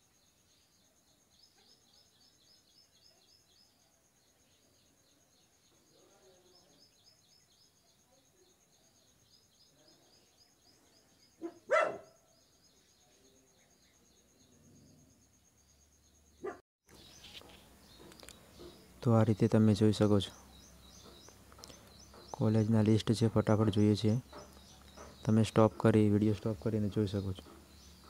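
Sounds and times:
dog barking: 0:11.4 - 0:12.2, 0:16.4 - 0:16.6.

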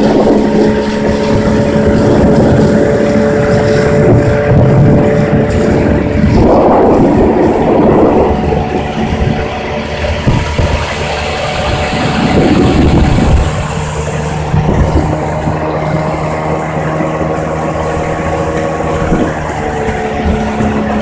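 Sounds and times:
outboard motor running: 0:00.0 - 0:21.0
wind and water rushing: 0:00.0 - 0:21.0.

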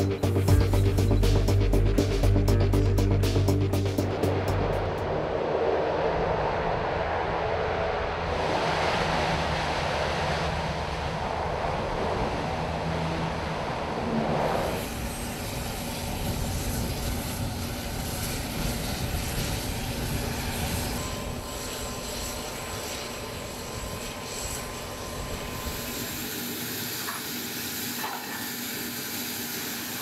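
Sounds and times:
deep rumble: 0:00.0 - 0:17.6
hovercraft engines and fans: 0:00.0 - 0:30.0
faint high whine: 0:13.5 - 0:30.0.

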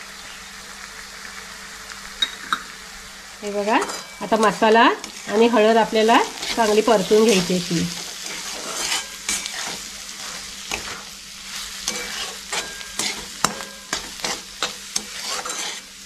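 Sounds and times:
onions sizzling in hot oil: 0:00.0 - 0:16.0
spatula scraping a metal pan: 0:03.8 - 0:16.0.

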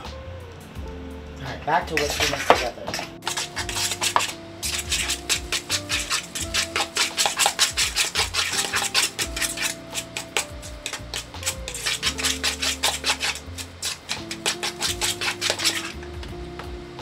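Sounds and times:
background music: 0:00.0 - 0:17.0
whisking in a plastic bowl: 0:01.9 - 0:16.3.

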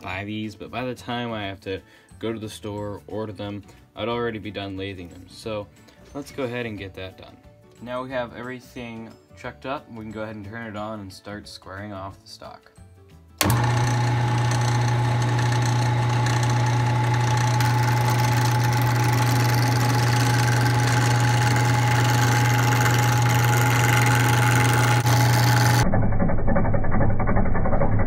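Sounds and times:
wood lathe humming and whining: 0:13.4 - 0:25.8
tool cutting spinning wood: 0:13.4 - 0:28.0.

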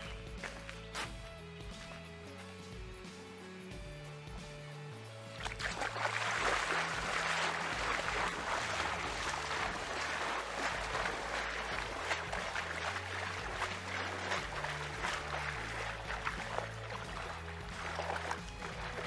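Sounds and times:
water splashing around legs: 0:05.3 - 0:19.0.

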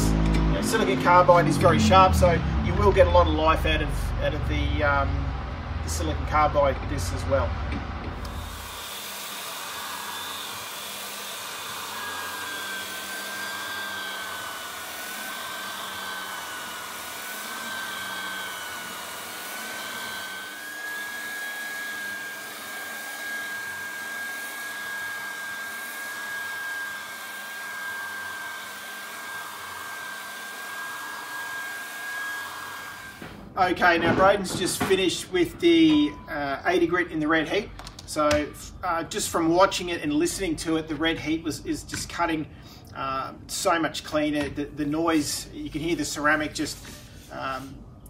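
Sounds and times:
floor edger sanding wood: 0:08.1 - 0:33.4.

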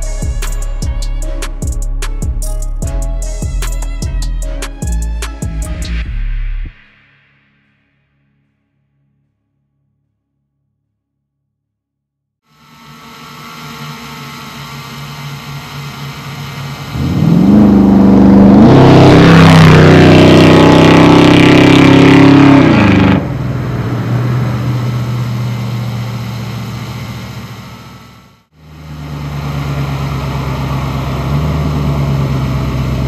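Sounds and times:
car engine revving: 0:12.7 - 0:33.0.

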